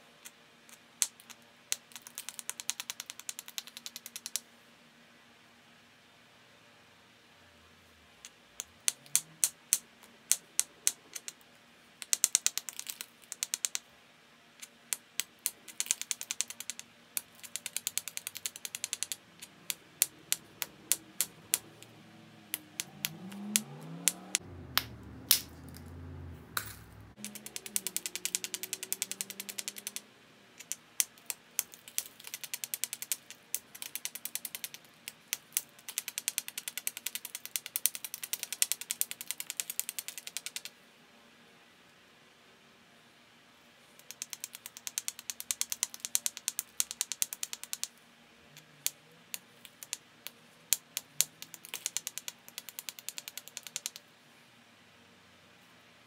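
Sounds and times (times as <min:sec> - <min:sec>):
low rumble: 0:23.7 - 0:27.2.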